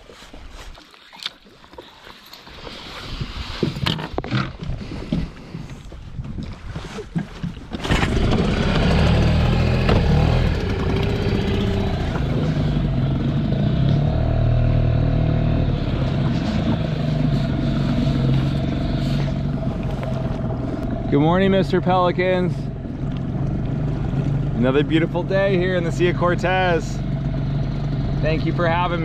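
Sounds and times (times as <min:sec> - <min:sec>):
small outboard motor running: 0:07.7 - 0:29.0.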